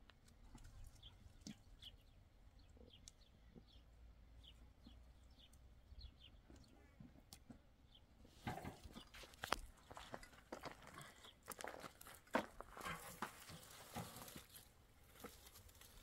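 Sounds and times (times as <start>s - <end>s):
small bird chirping: 0.6s - 8.1s.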